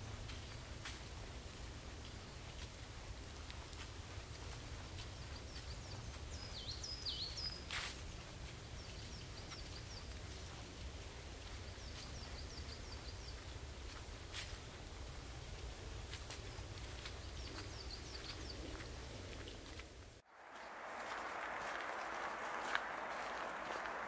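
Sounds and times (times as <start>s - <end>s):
small birds chirping: 3.5s - 13.7s, 16.3s - 19.1s.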